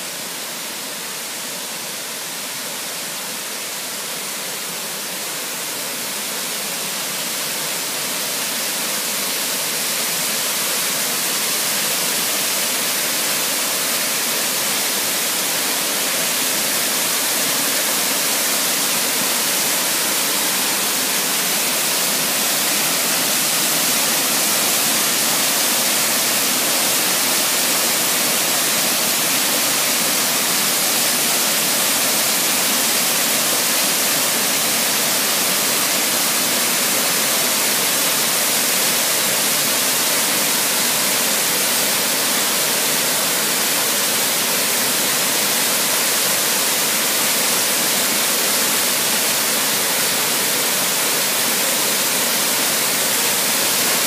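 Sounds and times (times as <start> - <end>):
waterfall crashing into a pool: 0.0 - 54.0.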